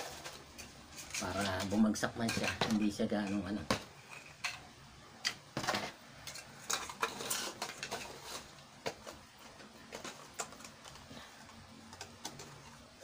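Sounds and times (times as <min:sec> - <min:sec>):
crinkly plastic rustles: 0:00.0 - 0:03.0, 0:06.2 - 0:13.0.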